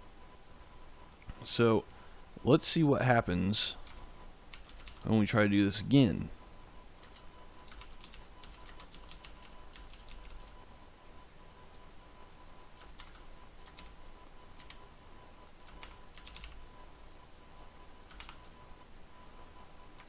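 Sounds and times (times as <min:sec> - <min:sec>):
computer keyboard typing: 0:03.8 - 0:05.1, 0:07.0 - 0:10.6, 0:12.8 - 0:14.0, 0:14.6 - 0:14.8, 0:15.6 - 0:16.6, 0:18.0 - 0:18.6.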